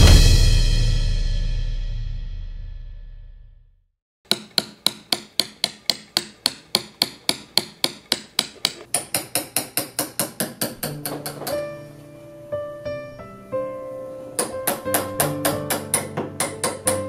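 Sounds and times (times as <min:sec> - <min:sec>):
hammer tapping chisel into wood: 0:04.3 - 0:11.8, 0:14.4 - 0:17.0.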